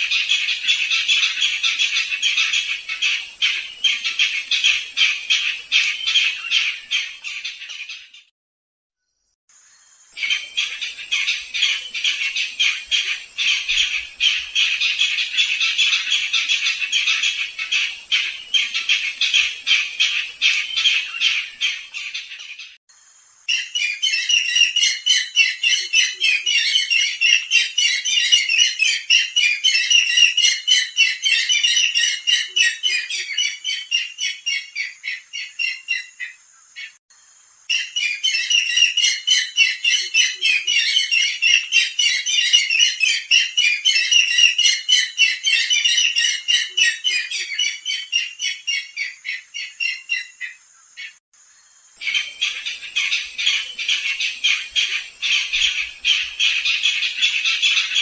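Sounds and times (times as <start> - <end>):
bird rapid chattering calls: 52.0 - 58.0.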